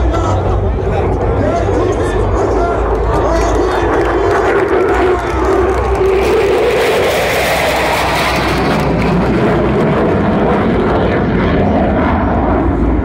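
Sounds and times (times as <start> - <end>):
jet flying past overhead: 0.0 - 13.0.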